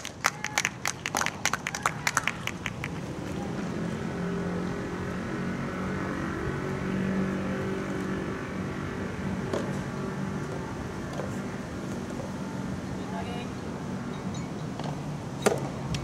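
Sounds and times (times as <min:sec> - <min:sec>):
hands clapping: 0:00.0 - 0:03.0
engine droning: 0:00.0 - 0:16.0.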